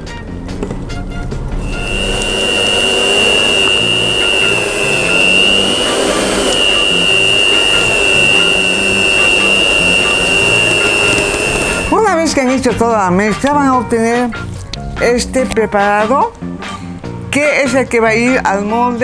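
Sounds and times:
stand mixer motor whine: 1.6s - 12.1s.

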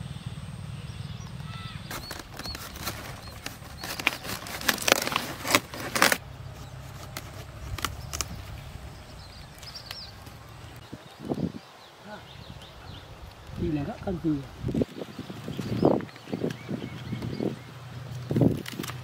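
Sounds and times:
low rumble: 0.0s - 11.4s
leaves and stalk crackling: 1.2s - 19.0s.

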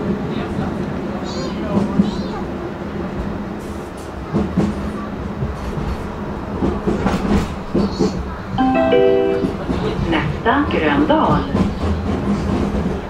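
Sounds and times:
tram rumble and hum: 0.0s - 13.0s
multi-note chime: 8.6s - 9.7s.

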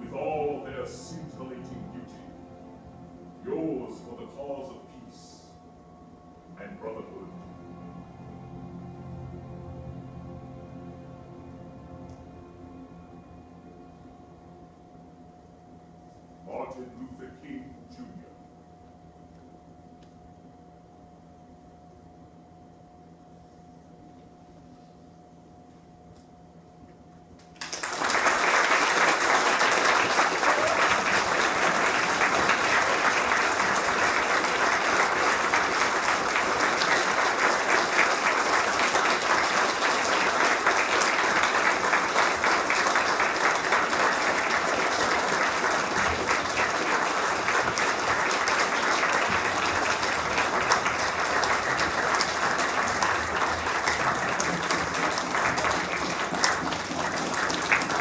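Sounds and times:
audience applauding: 27.4s - 58.0s.

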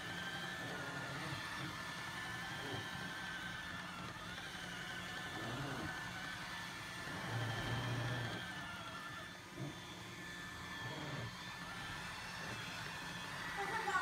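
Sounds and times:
robot vacuum whirring: 0.0s - 14.0s.

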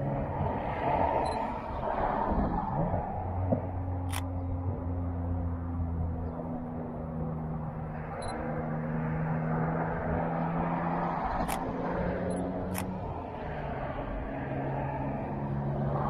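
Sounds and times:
vehicle engine droning: 0.0s - 16.0s
camera shutter clicks: 4.1s - 4.3s, 11.4s - 11.7s, 12.7s - 12.9s.

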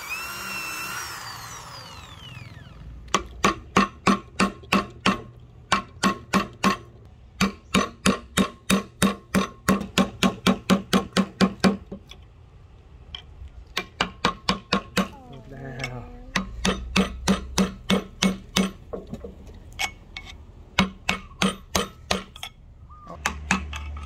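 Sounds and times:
hammer striking metal: 16.3s - 18.9s, 20.2s - 22.6s.

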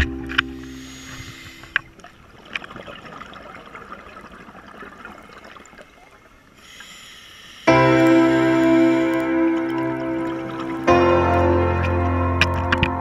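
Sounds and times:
faint underwater hiss: 0.0s - 2.2s, 4.7s - 11.1s
background music: 7.7s - 13.0s.

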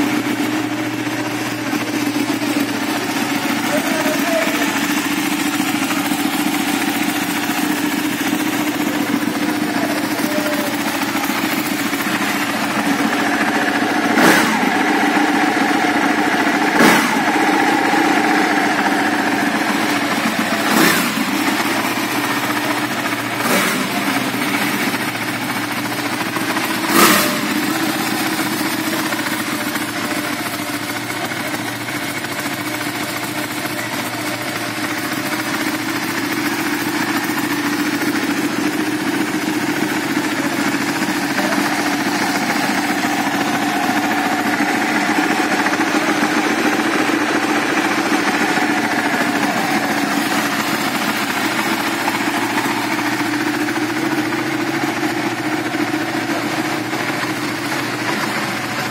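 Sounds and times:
motorcycle engine idling: 0.0s - 58.9s
engine revving bursts: 13.9s - 15.3s, 16.5s - 19.6s, 20.6s - 21.6s, 23.1s - 24.4s, 26.8s - 27.7s.

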